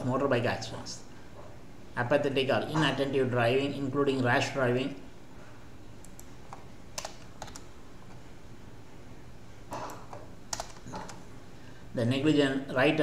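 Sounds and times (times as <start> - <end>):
faint low hum: 0.0 - 13.0
computer keys clicking: 6.0 - 7.7, 9.9 - 11.2.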